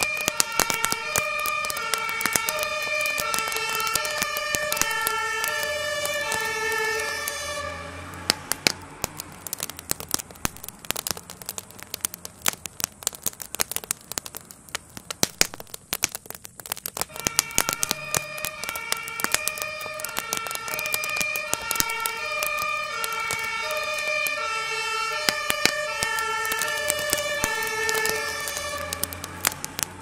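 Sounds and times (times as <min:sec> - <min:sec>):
two-tone emergency siren: 0:00.0 - 0:08.5, 0:17.1 - 0:29.9
fire crackling and popping: 0:00.0 - 0:30.0.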